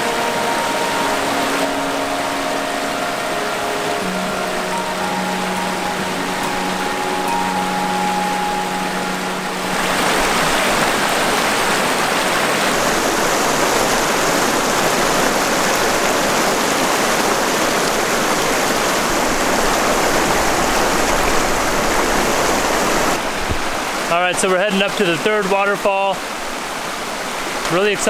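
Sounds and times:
creek water rushing over rocks: 0.0 - 28.0.

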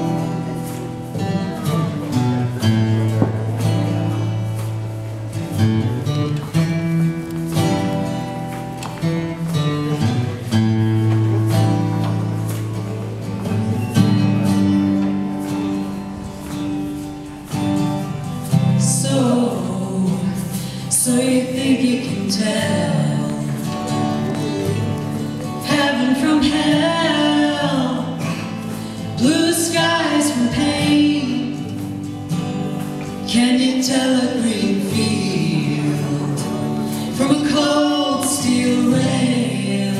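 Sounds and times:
strummed acoustic guitar: 0.0 - 39.9
person singing: 18.5 - 39.9.

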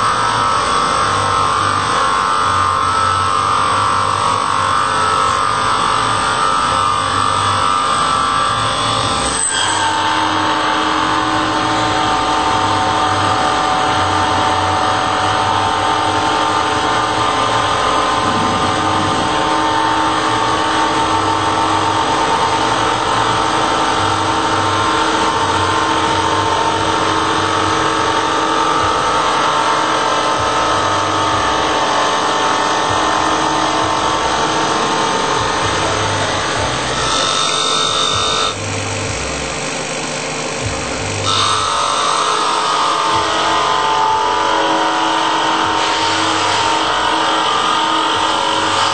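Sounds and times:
cutting wood noise: 0.0 - 48.9
machine whine: 0.0 - 48.9
pulsing low hum: 10.1 - 48.8.

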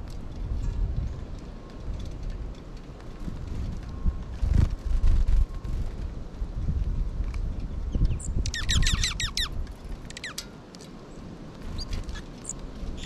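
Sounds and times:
wind rumbling on microphone: 0.0 - 13.0
songbird calling: 8.0 - 9.5, 10.1 - 10.4.

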